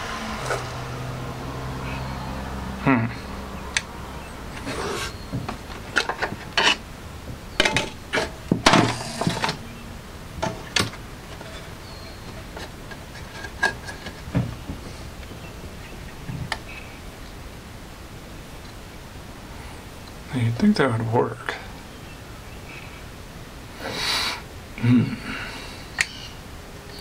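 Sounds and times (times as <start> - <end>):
hands handling plastic boombox: 4.6 - 9.7, 10.4 - 15.4.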